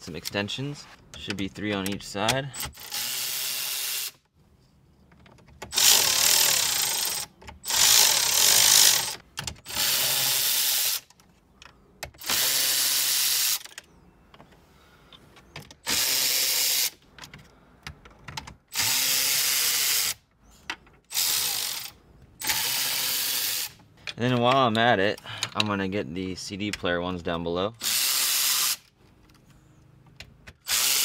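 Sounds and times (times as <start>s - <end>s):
electric ratchet running: 2.6s - 4.2s, 5.7s - 11.1s, 12.2s - 13.7s, 15.8s - 17.0s, 18.7s - 20.2s, 21.1s - 23.8s, 27.8s - 28.9s, 30.6s - 31.0s.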